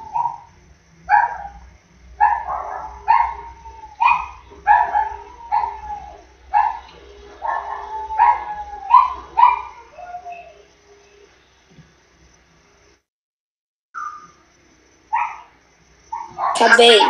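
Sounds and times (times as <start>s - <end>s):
dogs barking: 0.0s - 0.5s, 1.1s - 10.6s, 15.1s - 17.0s.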